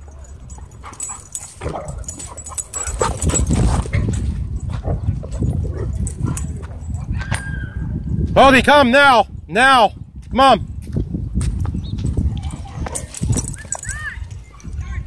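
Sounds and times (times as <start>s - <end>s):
dogs yipping and barking: 0.0s - 8.1s, 12.5s - 14.6s
dogs whimpering: 0.2s - 3.8s
dogs scuffling: 0.2s - 7.0s.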